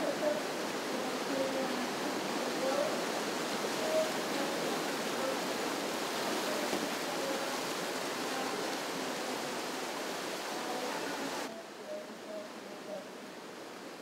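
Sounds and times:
whitewater rapids rushing: 0.0 - 14.0.

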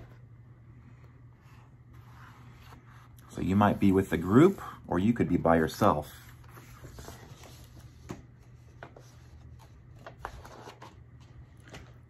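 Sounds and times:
low steady hum: 0.0 - 12.0
paper book pages rustling: 5.7 - 12.0.

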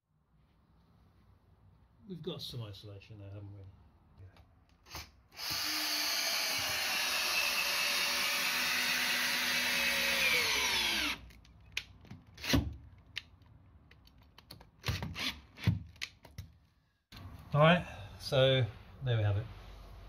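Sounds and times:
cordless drill driving bolt: 4.8 - 11.3.

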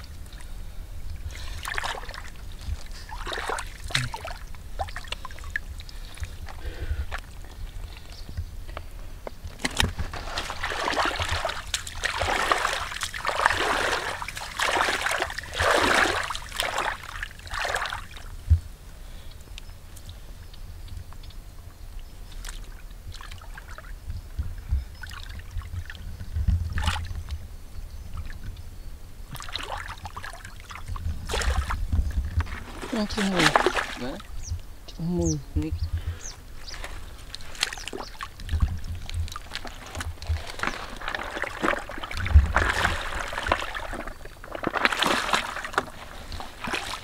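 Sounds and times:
hands splashing in muddy water: 1.3 - 6.6, 9.6 - 18.3, 29.4 - 31.8, 32.5 - 34.3, 36.7 - 47.0.

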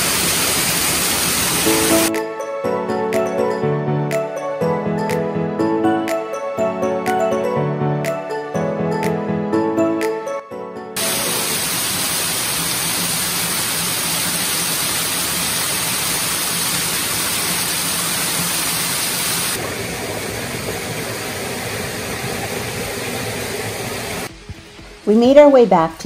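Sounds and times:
waterfall rushing over rocks: 0.0 - 2.1, 11.0 - 19.6.

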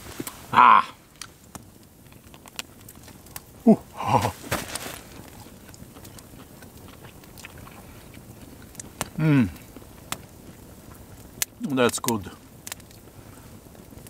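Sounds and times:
campfire crackling: 0.0 - 14.0
man humming mmm: 0.5 - 1.0, 3.6 - 4.4, 9.2 - 9.6
man chewing food: 5.0 - 11.2.

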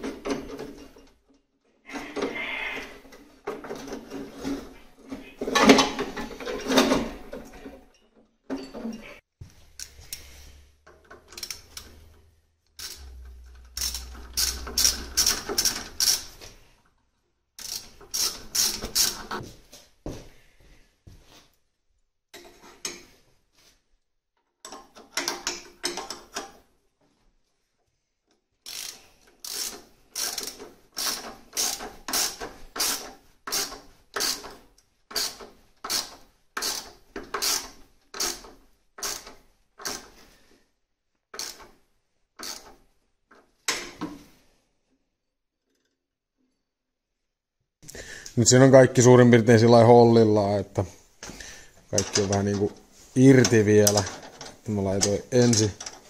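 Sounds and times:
ratchet wrench clicking: 12.8 - 16.3, 17.6 - 19.3, 28.6 - 34.5, 35.1 - 40.0, 41.4 - 41.7, 42.4 - 42.7.

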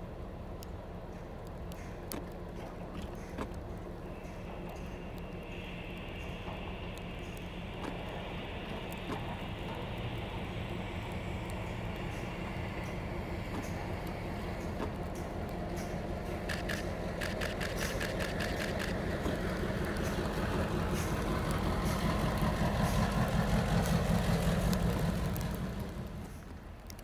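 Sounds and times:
diesel locomotive engine rumbling: 0.0 - 27.0
quick clicks: 12.8 - 20.2.

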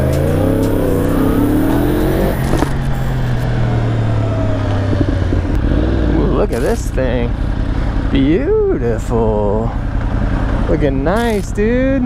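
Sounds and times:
motorcycle engine revving: 0.0 - 8.7
wind noise: 1.8 - 6.1.

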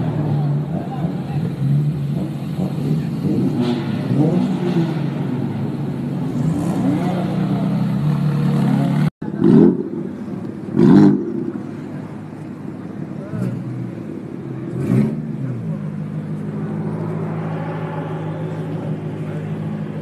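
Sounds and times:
car engine revving: 0.0 - 20.0
sports car engine idling: 9.2 - 20.0.

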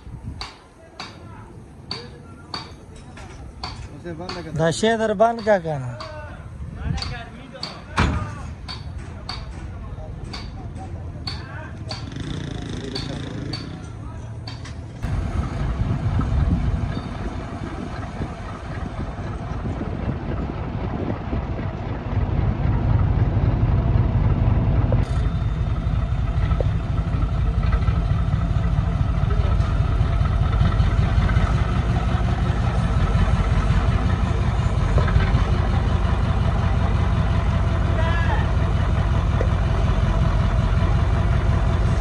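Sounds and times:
diesel truck engine idling: 9.8 - 42.0.

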